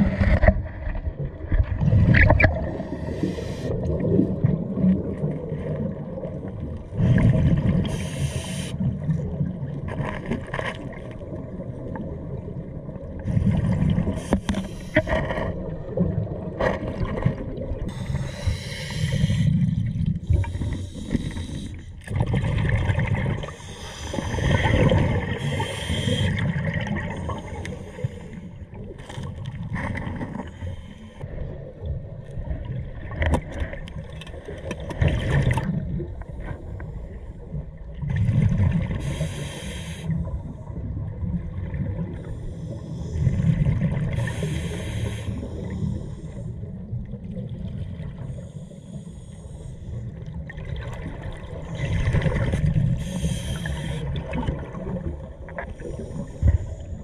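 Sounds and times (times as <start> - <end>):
exhaled bubbles gurgling: 0.0 - 57.0
underwater rumble: 0.0 - 57.0
diver breathing through regulator: 2.8 - 3.9, 7.8 - 8.8, 14.1 - 15.3, 17.9 - 22.0, 23.4 - 26.5, 38.9 - 40.2, 42.2 - 46.6, 48.2 - 50.1, 52.9 - 54.3.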